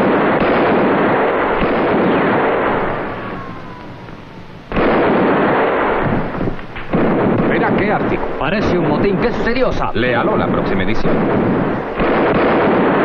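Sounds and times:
revolver gunfire: 0:00.0 - 0:13.0
faint falling whine: 0:02.4 - 0:04.8.

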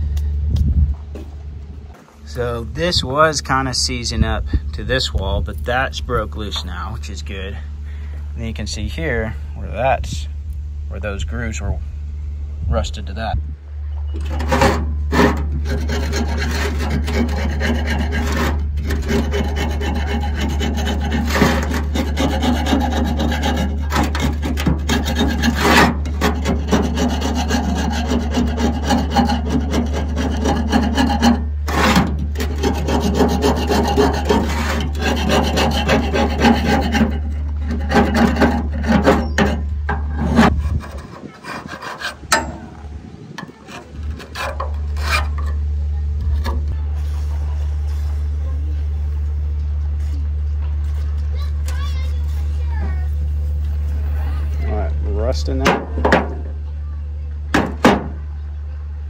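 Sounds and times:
steady low hum: 0:00.0 - 0:59.0
rough scraping of rust: 0:14.0 - 0:49.2.

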